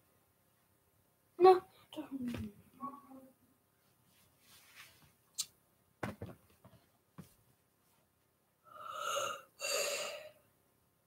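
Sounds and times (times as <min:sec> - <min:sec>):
person breathing in and out: 0:08.7 - 0:10.5.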